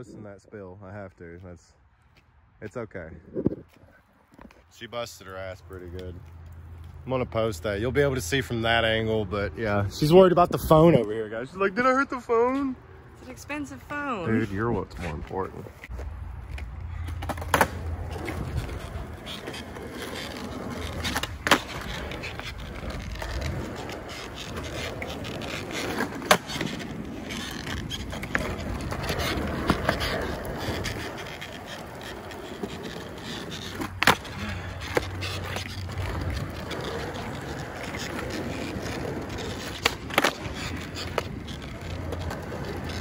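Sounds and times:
skateboard wheels rolling on concrete: 0:00.0 - 0:43.0
skateboard clacking on ground: 0:15.8 - 0:43.0.

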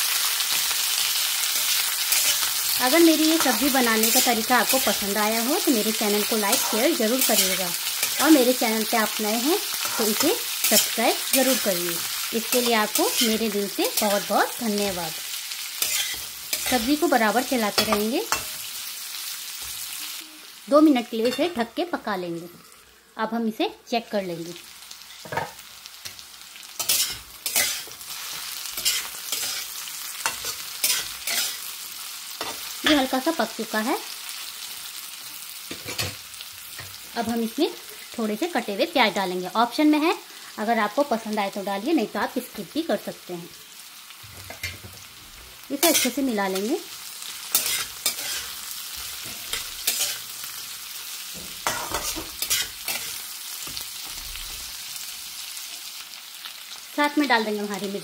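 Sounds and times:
vegetables sizzling in oil: 0:00.0 - 0:58.0
metal spatula scraping pan: 0:15.8 - 0:17.0, 0:26.8 - 0:31.7, 0:47.5 - 0:50.3, 0:51.4 - 0:53.8.

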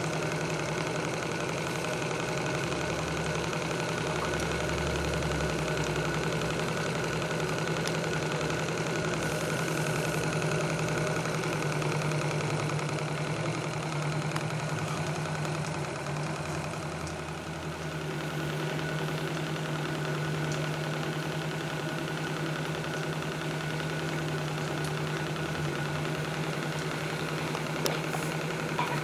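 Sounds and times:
model steam engine running: 0:00.0 - 0:29.0.

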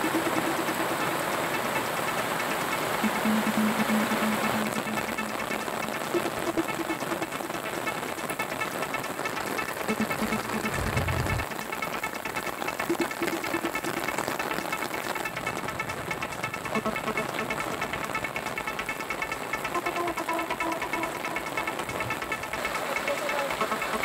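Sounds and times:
heavy rain on a road: 0:00.0 - 0:20.3
vehicle engine: 0:00.0 - 0:24.0
low rumble: 0:10.7 - 0:11.4.

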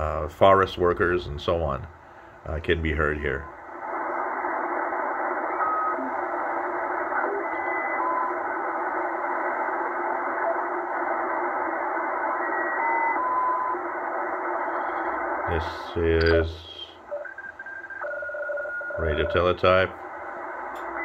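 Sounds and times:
shortwave radio static hiss: 0:00.0 - 0:18.0, 0:18.8 - 0:21.0
radio whistling tones: 0:03.9 - 0:19.2.

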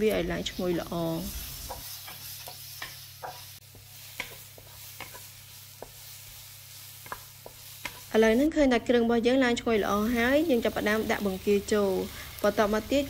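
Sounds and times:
food sizzling in oil: 0:00.0 - 0:13.0
wooden spatula tapping and scraping: 0:01.5 - 0:06.1, 0:07.0 - 0:08.1.

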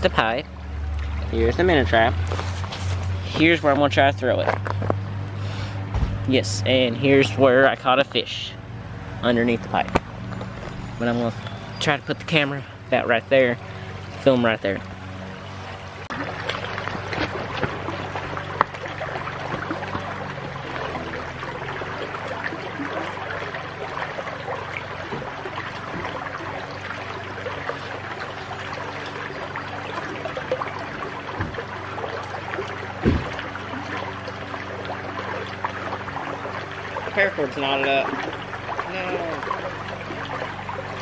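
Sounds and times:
creek water running over rocks: 0:00.0 - 0:41.0
short knocks: 0:33.0 - 0:33.4.

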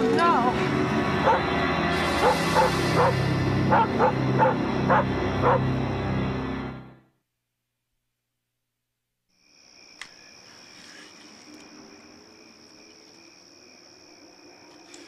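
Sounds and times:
crickets chirring: 0:09.3 - 0:15.0
faint click: 0:10.0 - 0:10.2.

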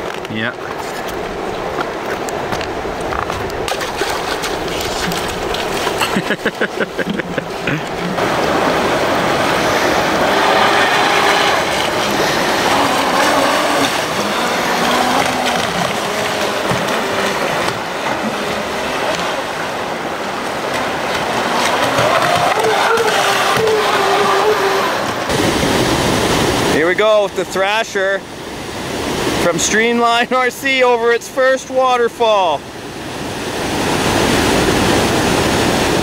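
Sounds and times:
river rapids rushing: 0:00.0 - 0:36.0
rapid fluttering: 0:03.1 - 0:06.2, 0:08.8 - 0:25.3
toy boat water-jet whine: 0:07.8 - 0:26.8.

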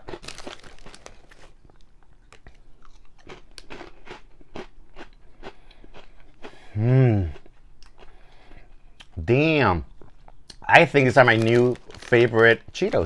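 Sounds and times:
person crunching snacks: 0:00.0 - 0:06.6, 0:09.9 - 0:13.0
person humming mmm: 0:06.7 - 0:07.4.

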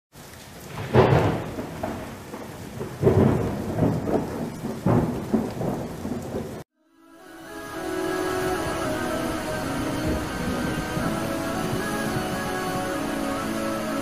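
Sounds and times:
rain hiss: 0:00.2 - 0:14.0
rolling thunderclaps: 0:00.7 - 0:06.6.

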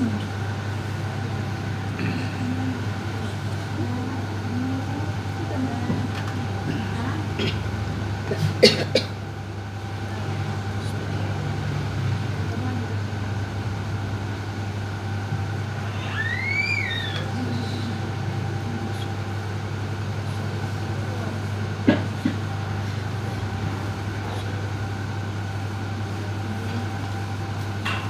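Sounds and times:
short squeal: 0:15.9 - 0:17.2.

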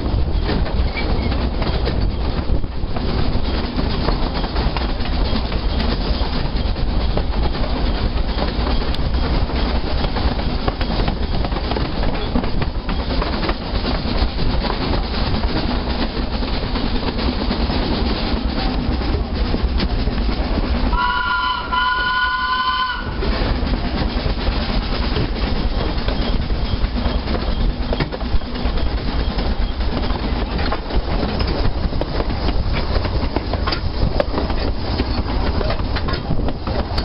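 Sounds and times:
train rumbling: 0:00.0 - 0:37.0
wheels clicking over rail joints: 0:00.0 - 0:37.0
train horn blasts: 0:20.9 - 0:23.2.

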